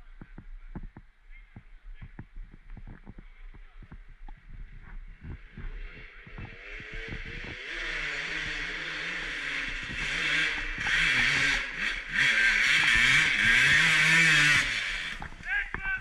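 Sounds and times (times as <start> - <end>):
dirt bike engine revving: 4.7 - 16.0.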